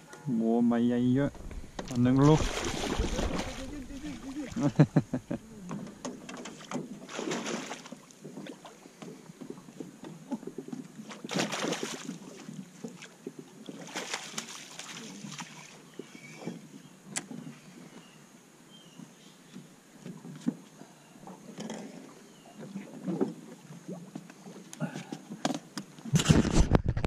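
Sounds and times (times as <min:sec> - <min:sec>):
water splashing beside a boat: 0:01.2 - 0:18.0.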